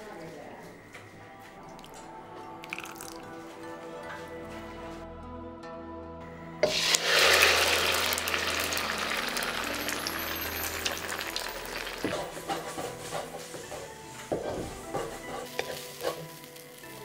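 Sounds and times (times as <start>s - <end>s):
egg sizzling in hot oil: 6.6s - 17.0s.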